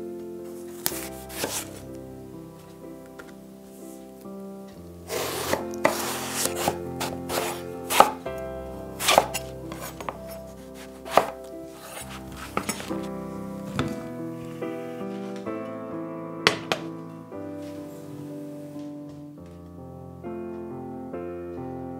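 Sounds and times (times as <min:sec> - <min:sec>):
soft background music: 0:00.0 - 0:21.9
knife cutting vegetable: 0:00.8 - 0:01.8, 0:05.1 - 0:08.2, 0:09.0 - 0:13.1.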